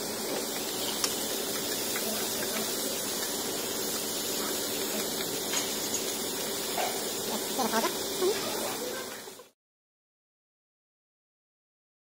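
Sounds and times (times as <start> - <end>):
meat sizzling on grill: 0.0 - 9.6.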